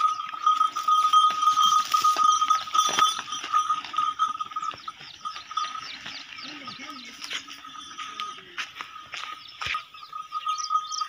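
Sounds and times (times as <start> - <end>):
pulsing high-pitched ringing tone: 0.0 - 11.0.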